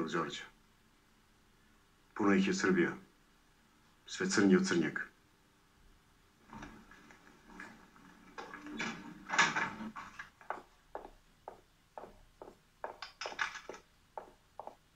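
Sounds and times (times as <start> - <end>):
footsteps: 6.5 - 14.9.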